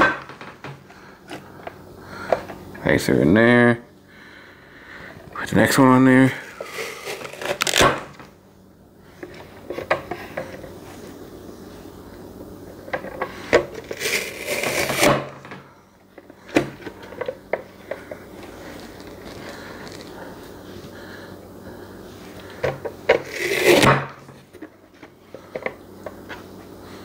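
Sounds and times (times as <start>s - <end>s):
tomato scraping crush: 6.2s - 8.2s, 13.3s - 15.4s, 23.2s - 24.5s.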